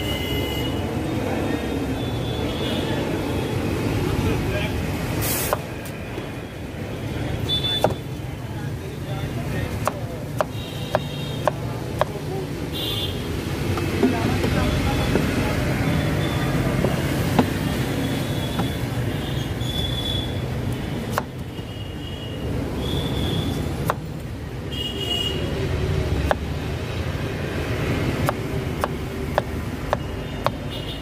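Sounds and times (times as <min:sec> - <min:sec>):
road traffic rumble: 0:00.0 - 0:31.0
knife chopping on wooden board: 0:07.8 - 0:08.0, 0:09.8 - 0:12.2, 0:16.8 - 0:17.6, 0:18.5 - 0:18.8, 0:21.1 - 0:21.4, 0:23.8 - 0:24.1, 0:26.2 - 0:26.5, 0:28.2 - 0:30.6.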